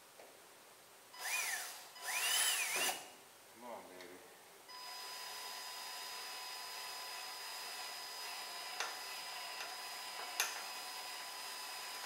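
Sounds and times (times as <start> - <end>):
cordless drill whining: 1.2 - 3.1, 4.7 - 12.0.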